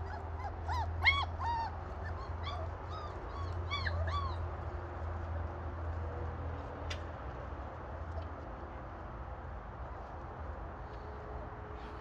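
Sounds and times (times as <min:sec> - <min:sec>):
puppy whimpering and yelping: 0:00.0 - 0:04.5.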